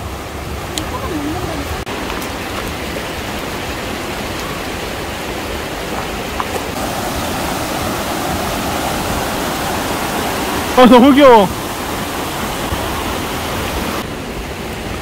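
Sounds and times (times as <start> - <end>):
rushing stream and waterfall: 0.0 - 15.0.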